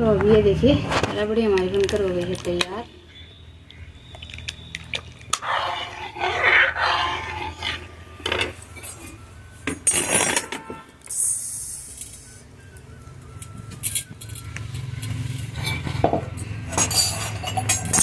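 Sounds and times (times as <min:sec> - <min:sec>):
metal ladle scraping iron pot: 0:05.3 - 0:09.1, 0:15.4 - 0:18.0.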